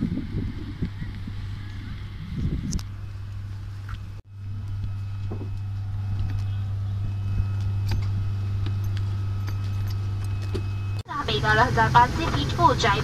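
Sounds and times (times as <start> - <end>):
turboprop engine drone: 0.0 - 13.0.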